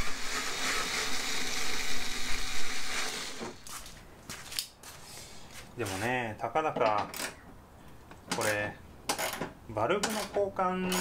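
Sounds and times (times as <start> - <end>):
electric screwdriver running: 0.0 - 3.6.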